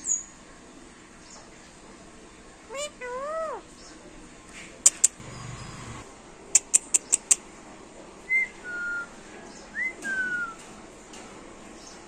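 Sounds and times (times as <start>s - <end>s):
parakeet chirping: 2.7s - 3.6s.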